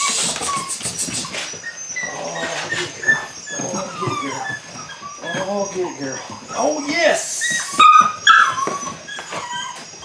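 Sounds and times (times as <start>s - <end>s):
rag scuffing on concrete: 0.0s - 1.8s
puppy whining and yipping: 0.0s - 10.0s.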